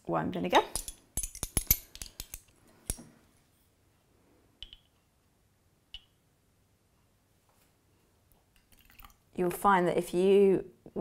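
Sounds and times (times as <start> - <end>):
plastic spoons clicking together: 0.7 - 2.5.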